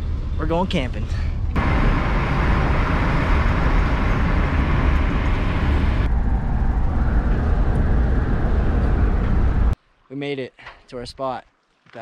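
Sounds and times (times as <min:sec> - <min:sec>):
car road rumble: 0:00.0 - 0:09.8
wind hiss: 0:01.6 - 0:09.8.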